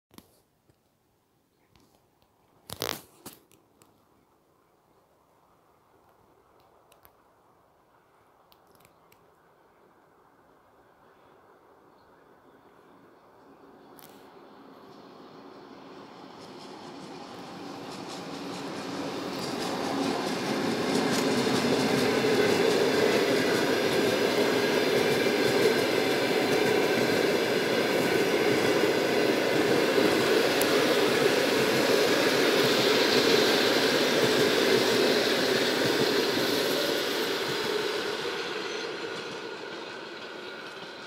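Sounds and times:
train wheels rumbling on rail: 0:13.4 - 0:41.0.

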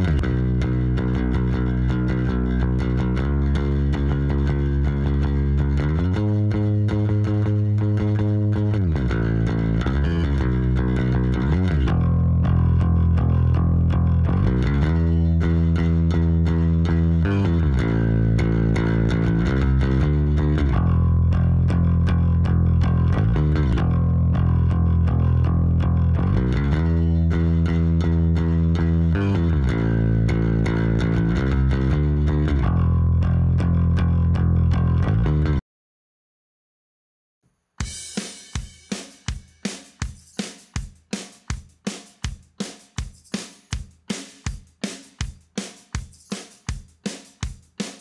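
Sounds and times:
electric bass guitar: 0:00.0 - 0:35.6.

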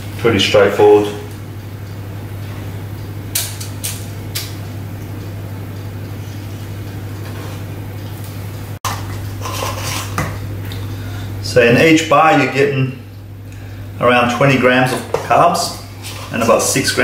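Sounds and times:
steady low hum: 0:00.0 - 0:17.0
metal spoon scraping steel bowl: 0:09.4 - 0:10.2.

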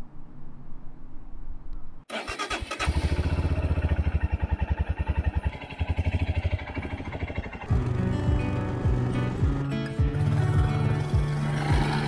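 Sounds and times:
motorcycle engine cranking: 0:02.1 - 0:07.9
engine idling: 0:02.1 - 0:12.0.

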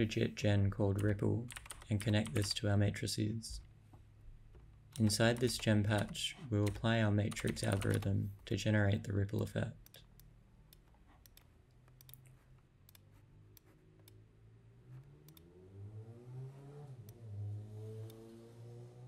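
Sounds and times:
computer mouse clicking: 0:01.0 - 0:02.6, 0:04.9 - 0:08.1, 0:09.8 - 0:14.2, 0:15.2 - 0:15.5, 0:18.0 - 0:18.2.

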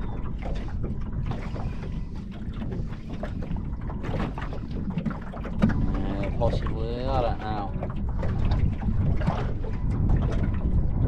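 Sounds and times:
water lapping against boat hull: 0:00.0 - 0:11.0
wind buffeting microphone: 0:00.0 - 0:11.0.

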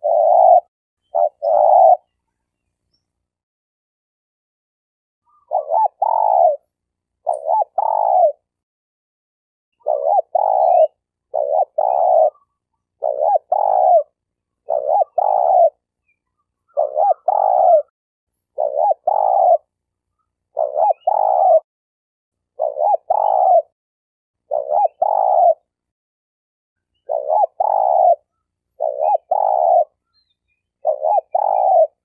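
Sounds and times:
dove cooing: 0:00.0 - 0:02.1, 0:05.3 - 0:06.6, 0:07.2 - 0:08.5, 0:09.8 - 0:15.9, 0:16.6 - 0:17.9, 0:18.6 - 0:19.8, 0:20.5 - 0:21.7, 0:22.6 - 0:23.7, 0:24.4 - 0:25.8, 0:27.0 - 0:30.0, 0:30.8 - 0:32.0.

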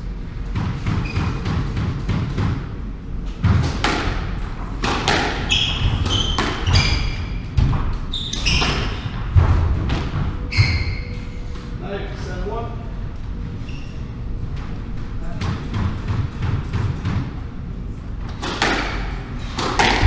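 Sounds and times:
squash ball knocking: 0:03.4 - 0:07.9, 0:18.4 - 0:20.0
shoes squeaking on wooden floor: 0:05.4 - 0:07.3, 0:10.4 - 0:11.3.

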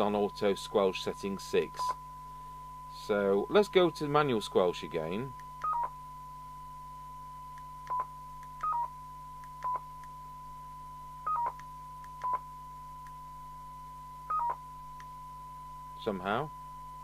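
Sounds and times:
steady test tone: 0:00.0 - 0:17.0
radio key press beeps: 0:05.6 - 0:06.0, 0:07.9 - 0:08.9, 0:11.3 - 0:12.4, 0:14.3 - 0:14.6.

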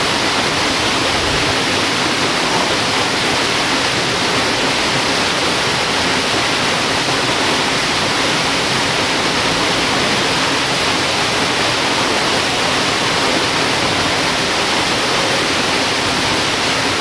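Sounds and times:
river water rushing into pool: 0:00.0 - 0:17.0.

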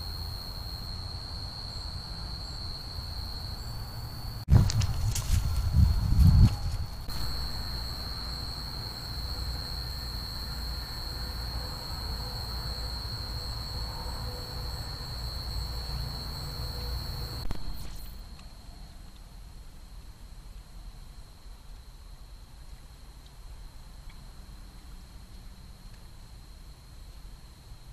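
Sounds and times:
insect chorus trilling: 0:00.0 - 0:18.9.

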